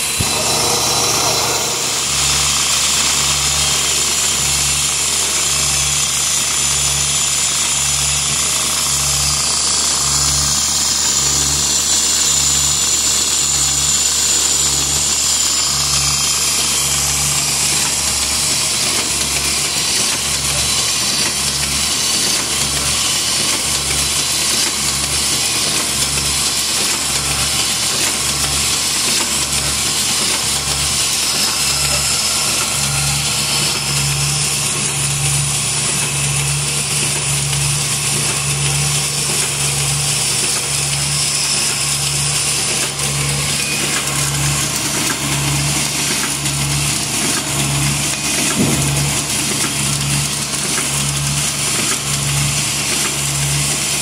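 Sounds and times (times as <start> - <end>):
steady low pulse: 0.0 - 3.1.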